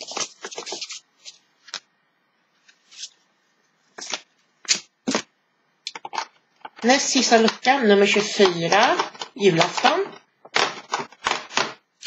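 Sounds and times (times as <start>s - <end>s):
paper and cardboard rustling: 0.0s - 1.4s.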